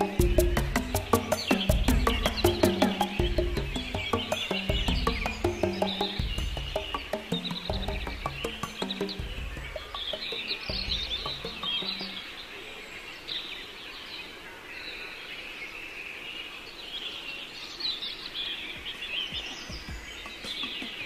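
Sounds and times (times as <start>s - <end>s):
low bird notes: 0.0s - 12.6s
birds chirping: 0.0s - 21.0s.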